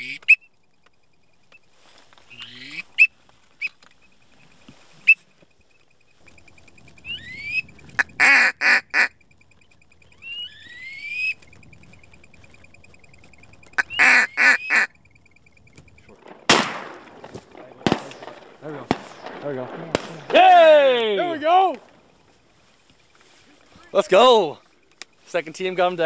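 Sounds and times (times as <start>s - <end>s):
duck call quacks: 0.0s - 0.4s, 2.3s - 3.7s, 7.0s - 9.2s, 13.7s - 15.0s.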